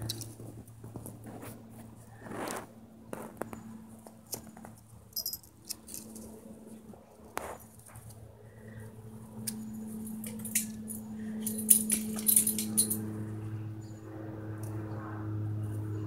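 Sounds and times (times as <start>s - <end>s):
low hum: 4.8s - 16.0s.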